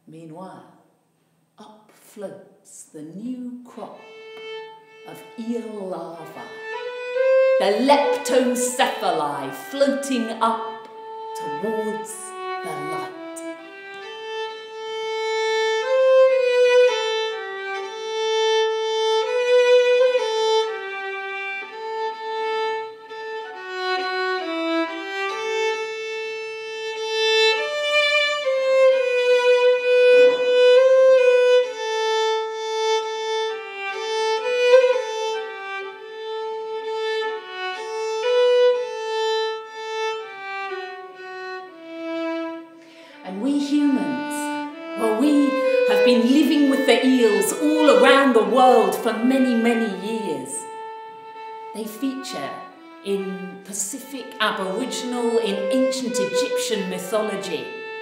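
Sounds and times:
solo violin melody: 3.8s - 58.0s.

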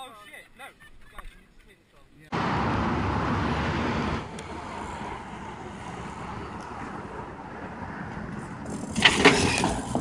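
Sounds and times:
road traffic: 2.3s - 10.0s.

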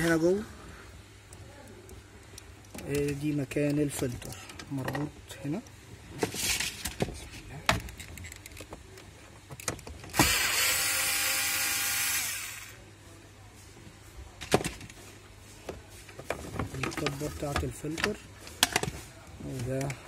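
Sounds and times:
power drill running: 10.1s - 12.8s.

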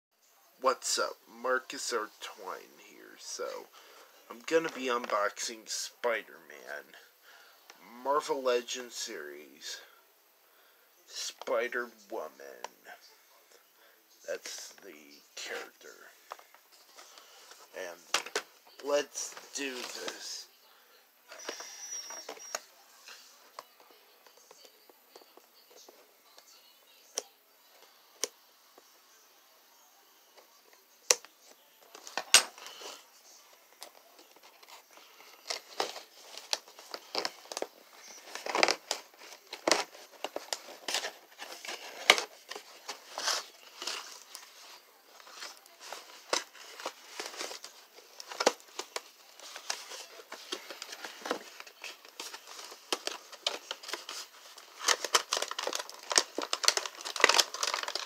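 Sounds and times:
packaging crinkling and rustling: 31.9s - 58.0s.

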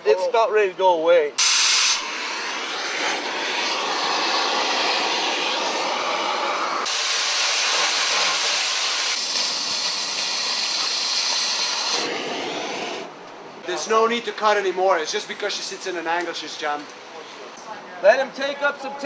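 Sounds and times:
cutting torch hissing: 1.4s - 13.2s.

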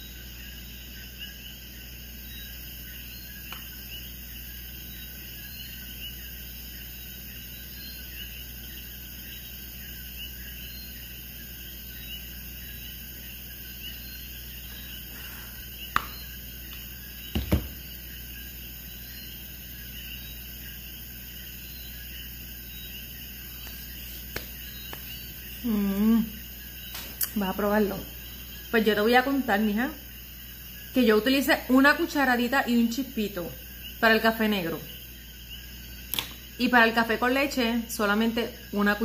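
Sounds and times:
loud knock: 17.3s - 17.9s
sharp click: 36.1s - 36.4s.

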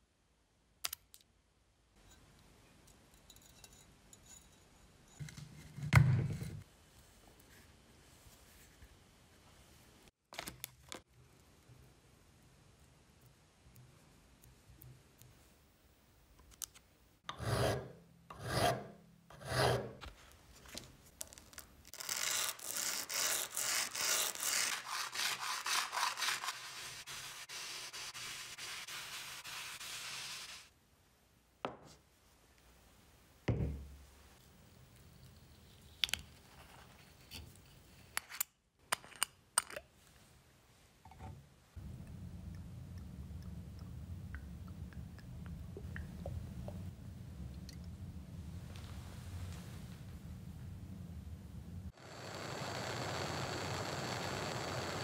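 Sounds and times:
sandpaper rasping scrape: 22.0s - 30.7s.

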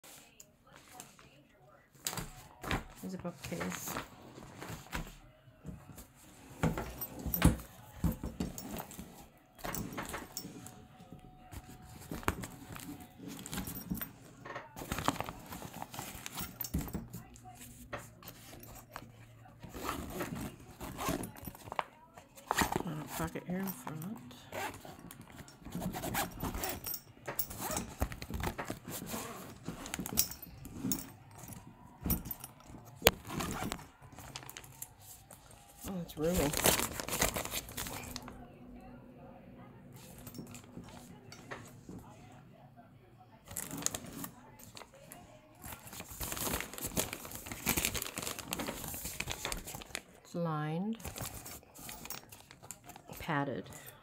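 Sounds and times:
rustling cloth: 2.0s - 10.9s, 11.5s - 38.4s
zipper: 19.6s - 21.8s, 22.4s - 31.6s, 33.0s - 33.9s.

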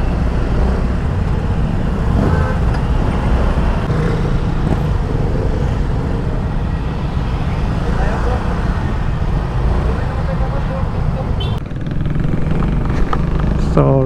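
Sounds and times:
wind and road noise: 0.0s - 14.0s
scooter engine running: 11.4s - 14.0s.

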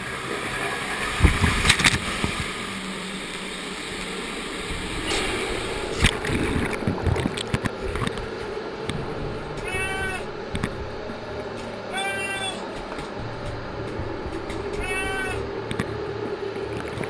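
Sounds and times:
loud water splash: 0.0s - 8.1s
water churning and sloshing: 0.0s - 17.0s.

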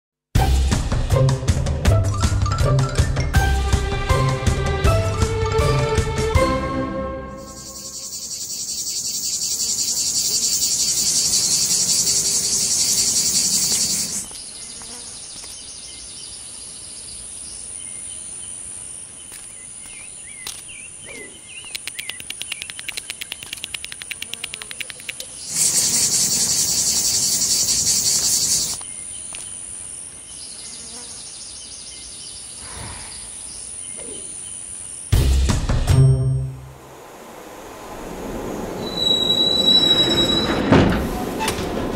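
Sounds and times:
cicadas buzzing: 7.4s - 35.2s, 36.7s - 41.6s
fast clicking: 21.6s - 25.4s.

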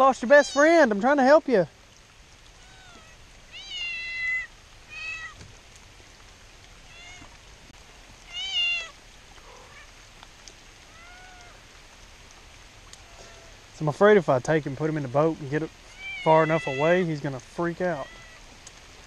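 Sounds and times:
cat meowing: 2.6s - 5.4s, 6.9s - 7.3s, 8.3s - 9.8s, 10.9s - 11.6s, 15.9s - 17.0s, 18.0s - 18.4s.

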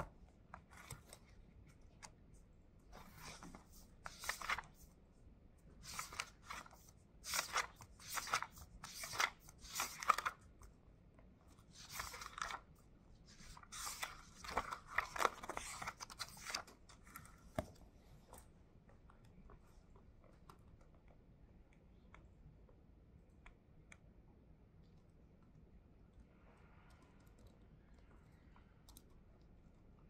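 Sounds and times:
notebook pages rustling: 0.5s - 2.1s, 2.9s - 4.9s, 5.8s - 10.5s, 11.6s - 17.8s.

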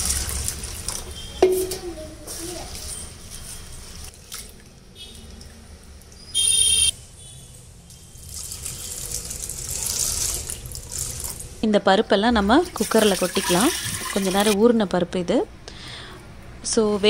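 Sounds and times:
water pouring from jug: 8.2s - 11.6s, 12.7s - 14.6s.

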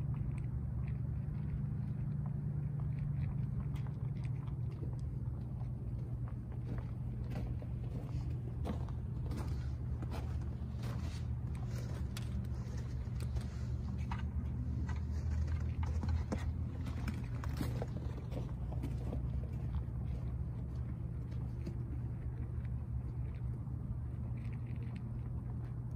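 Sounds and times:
low mechanical hum: 0.0s - 25.9s
rabbits chewing: 0.0s - 25.9s.

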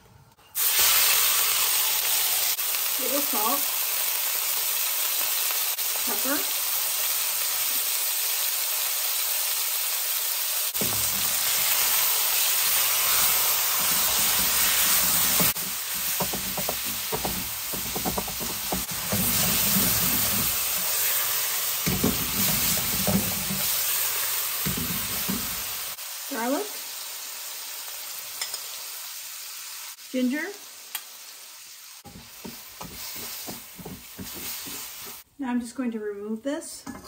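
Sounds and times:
meat sizzling in a wok: 0.6s - 35.3s
wooden spatulas scraping a wok: 10.8s - 24.0s, 32.1s - 35.2s.

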